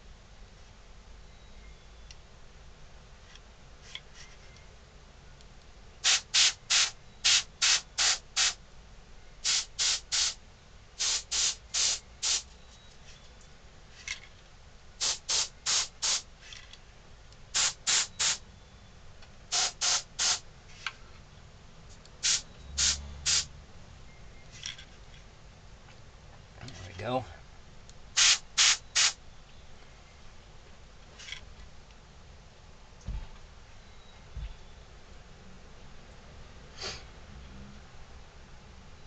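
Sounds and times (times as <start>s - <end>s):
airbrush hissing puffs: 6.0s - 8.6s, 9.4s - 10.4s, 11.0s - 12.5s, 15.0s - 16.3s, 17.6s - 18.4s, 19.5s - 20.4s, 22.2s - 23.5s, 28.2s - 29.2s.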